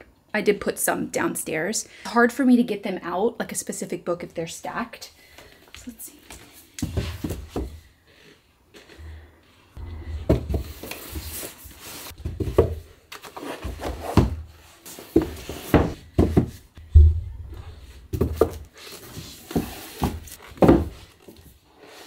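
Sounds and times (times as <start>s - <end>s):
books rubbing and sliding: 10.3s - 12.5s, 13.1s - 16.0s, 18.2s - 22.0s
books knocking on wooden shelf: 12.2s - 12.9s, 15.1s - 17.2s, 18.1s - 18.7s, 19.4s - 21.1s.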